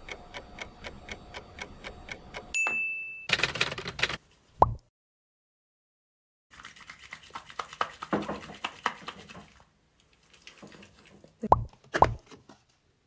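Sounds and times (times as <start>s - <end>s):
hands rubbing cleanser on face: 6.5s - 9.6s
cartoon plop sound effects: 11.5s - 12.2s.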